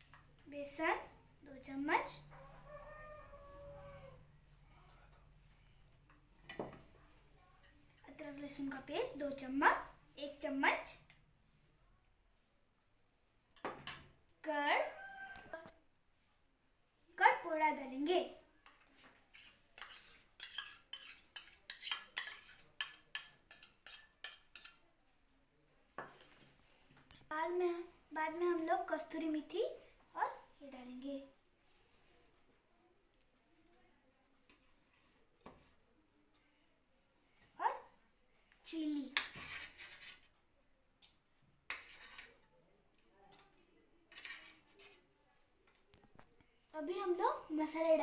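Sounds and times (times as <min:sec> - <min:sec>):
spoon scraping metal bowl: 0:19.3 - 0:24.8, 0:39.1 - 0:40.3, 0:41.7 - 0:42.4, 0:44.1 - 0:45.1.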